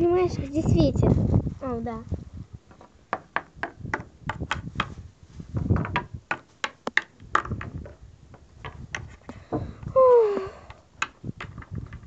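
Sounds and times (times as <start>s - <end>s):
plastic toys tapping on wood: 5.8s - 8.0s.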